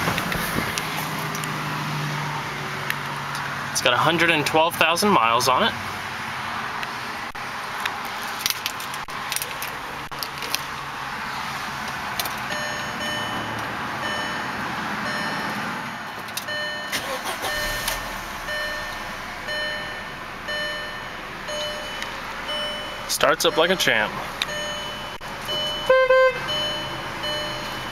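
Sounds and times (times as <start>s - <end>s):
car engine starting and idling: 0.0s - 27.9s
dashboard warning chime: 12.5s - 15.6s, 16.4s - 27.9s.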